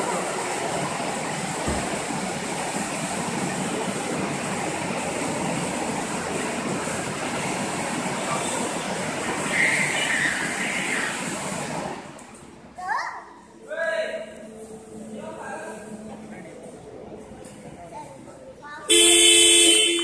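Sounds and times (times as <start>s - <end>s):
car wash machine rushing: 0.0s - 12.8s.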